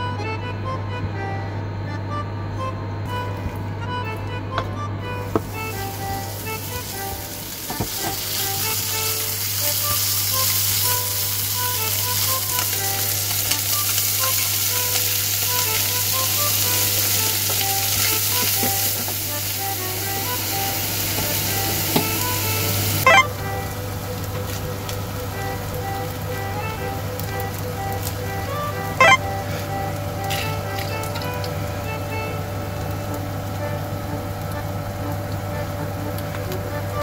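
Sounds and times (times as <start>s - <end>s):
chicken and onion sizzling in a pan: 5.2s - 37.0s.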